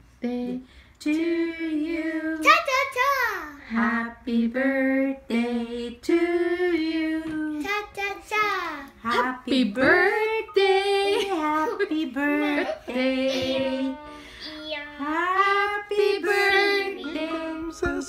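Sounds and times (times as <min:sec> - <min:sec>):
boys singing wordlessly: 0:03.7 - 0:08.4, 0:09.0 - 0:18.0.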